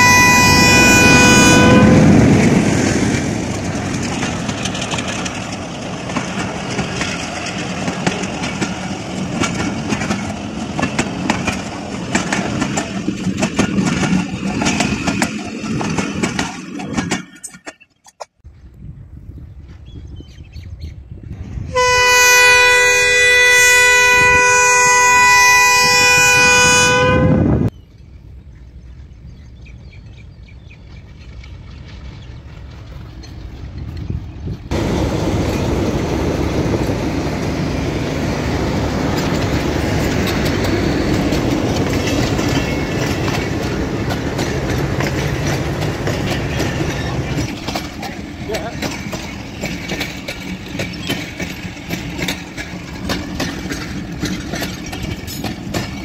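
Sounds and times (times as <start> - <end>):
locomotive horn: 0.0 - 2.3, 21.7 - 27.7
locomotive engine running: 0.0 - 17.6, 29.8 - 56.0
passenger coaches rumbling past: 0.0 - 17.6, 21.1 - 56.0
wheels clattering over rails: 0.6 - 18.2, 30.6 - 56.0.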